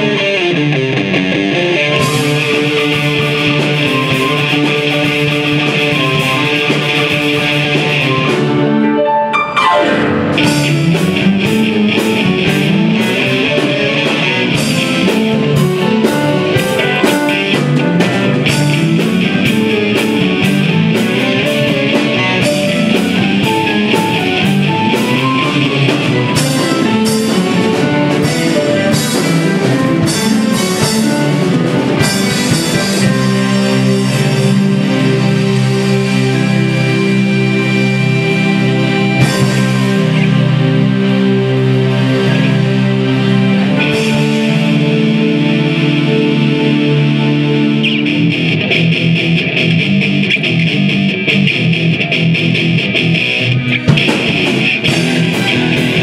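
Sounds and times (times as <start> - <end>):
live rock band playing: 0.0 - 56.0
falling pitch slide: 8.1 - 13.6.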